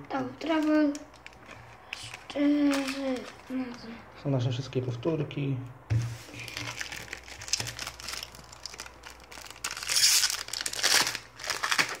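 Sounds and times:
foil packet crinkling: 0:00.4 - 0:03.9, 0:06.3 - 0:12.0
foil packet tearing: 0:00.6 - 0:03.4, 0:06.3 - 0:12.0.

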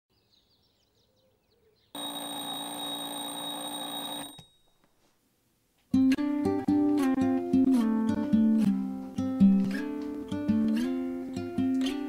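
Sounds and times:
bell ringing: 0:02.0 - 0:04.8.

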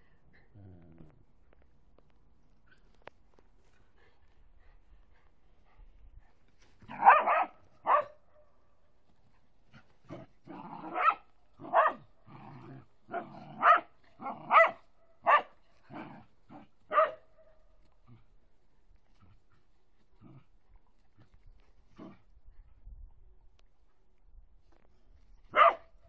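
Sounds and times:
dog barking: 0:06.9 - 0:08.2, 0:10.9 - 0:12.1, 0:13.6 - 0:15.6, 0:16.9 - 0:17.3, 0:25.5 - 0:25.9.

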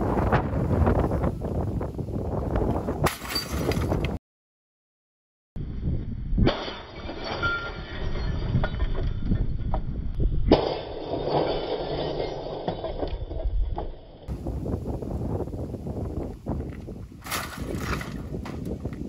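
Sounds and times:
scattered debris clatter: 0:10.5 - 0:14.1.

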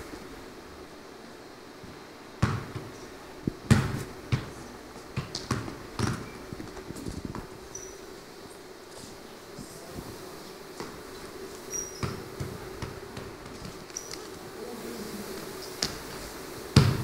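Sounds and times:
football thudding: 0:02.4 - 0:03.0, 0:03.6 - 0:07.5, 0:16.8 - 0:17.0.

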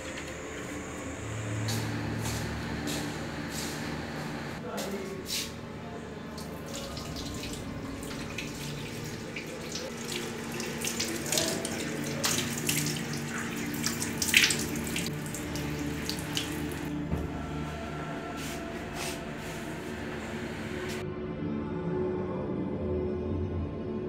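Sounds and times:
hands splashing water: 0:06.4 - 0:16.9
tap water running into basin: 0:06.4 - 0:16.9.

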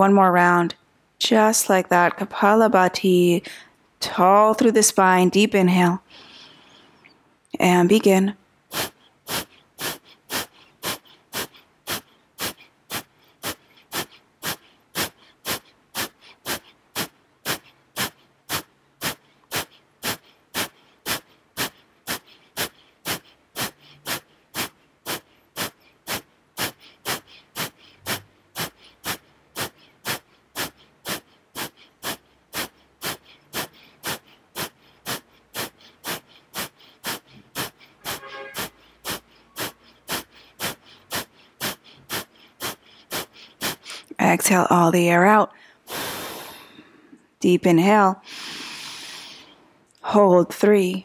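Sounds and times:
forceful nasal exhales: 0:06.1 - 0:07.0, 0:08.7 - 0:44.2, 0:45.5 - 0:47.2, 0:48.2 - 0:49.7.

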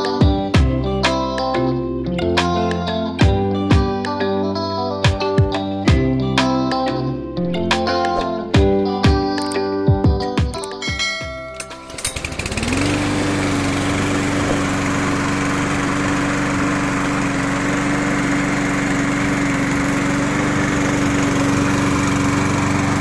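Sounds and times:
lawn mower engine starting: 0:11.4 - 0:23.0.

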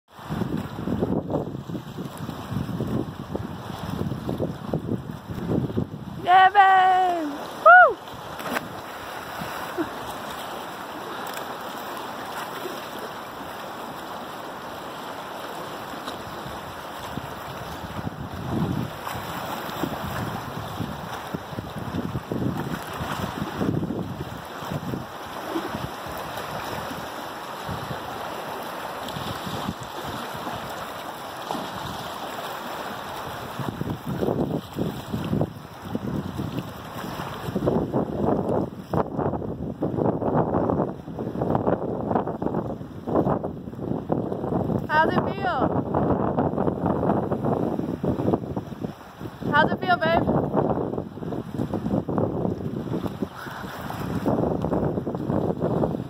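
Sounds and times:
wind buffeting microphone: 0:00.1 - 0:10.6, 0:16.0 - 0:56.0
choppy sea water: 0:00.1 - 0:56.0
swimmer splashing into water: 0:07.2 - 0:13.6.

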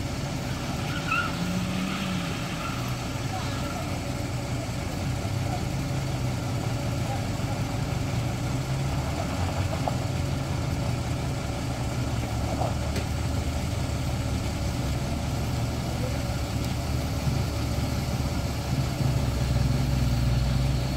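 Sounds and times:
vehicle engines idling: 0:00.0 - 0:20.9.

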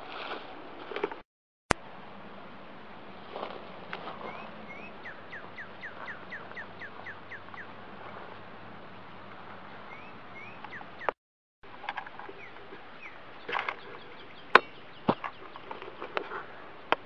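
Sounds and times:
songbird singing: 0:03.4 - 0:11.2, 0:11.8 - 0:17.0.

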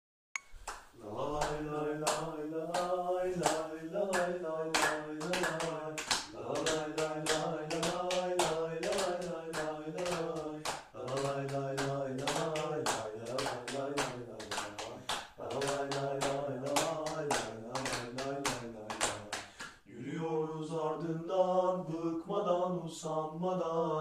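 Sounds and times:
clapping in time: 0:00.7 - 0:19.8
men singing a terrace chant: 0:01.0 - 0:24.0.

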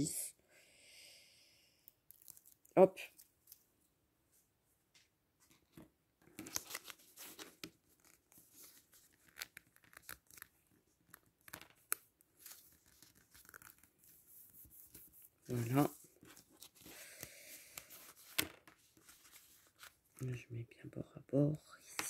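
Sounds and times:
paper rustling and scraping: 0:06.4 - 0:11.8, 0:12.4 - 0:17.0, 0:17.7 - 0:20.2.

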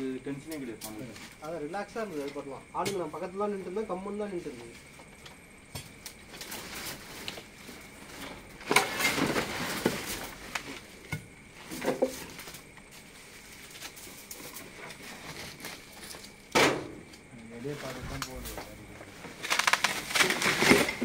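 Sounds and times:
wire mesh rustling and scraping: 0:06.1 - 0:11.0, 0:11.6 - 0:16.5, 0:19.3 - 0:21.0.

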